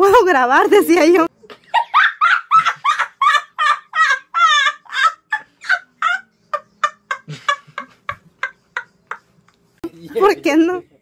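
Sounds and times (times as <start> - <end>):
boy laughing hard: 1.7 - 9.2.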